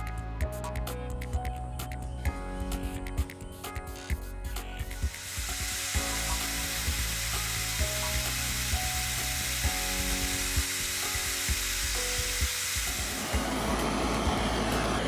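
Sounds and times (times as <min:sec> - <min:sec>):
soft background music: 0:00.0 - 0:15.0
steady hiss: 0:05.0 - 0:13.4
powder sizzling and crackling: 0:05.0 - 0:13.6.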